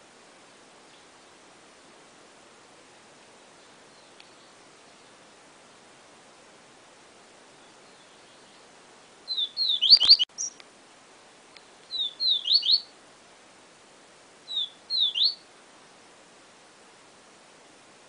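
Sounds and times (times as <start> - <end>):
bird singing high whistles: 9.3 - 10.6, 11.9 - 12.9, 14.5 - 15.4.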